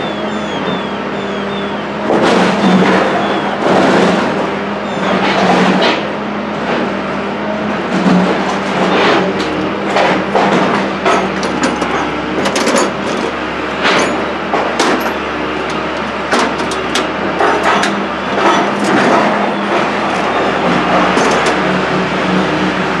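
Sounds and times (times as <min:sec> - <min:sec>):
metallic clanks and clicks: 0:08.3 - 0:21.8.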